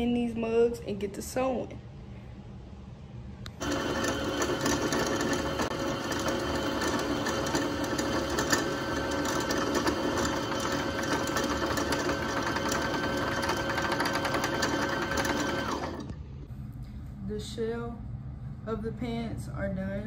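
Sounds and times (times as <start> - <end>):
sewing machine motor hum: 3.5 - 16.2.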